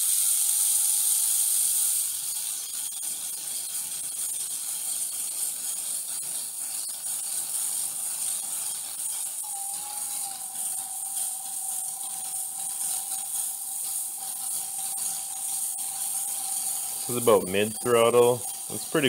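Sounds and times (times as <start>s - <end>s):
small motors whirring: 0.0s - 19.0s
steady high whine: 8.4s - 19.0s.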